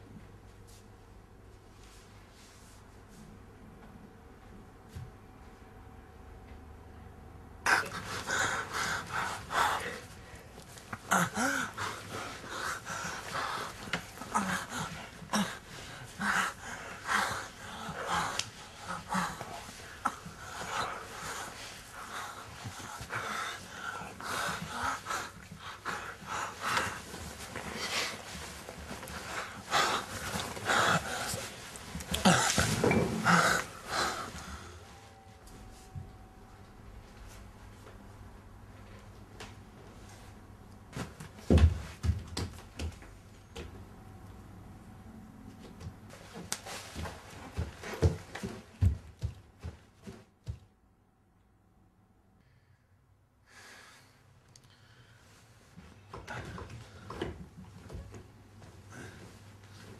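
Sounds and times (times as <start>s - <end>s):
person panting and gasping: 7.7s - 34.9s
voiced moan: 10.9s - 27.1s, 29.2s - 35.1s.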